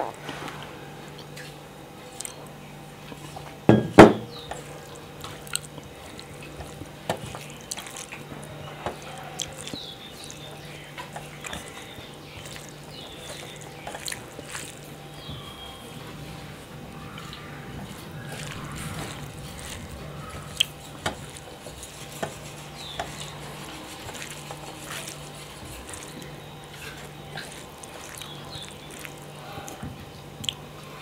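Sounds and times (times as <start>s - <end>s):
wet squelching of hand mashing: 3.1s - 30.7s
brass bowl knocking on table: 3.7s - 4.3s.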